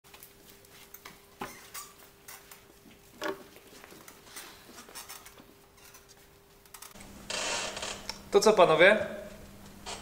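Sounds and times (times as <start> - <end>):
faint steady hum: 0.1 - 10.0
people settling into chairs: 0.7 - 8.0.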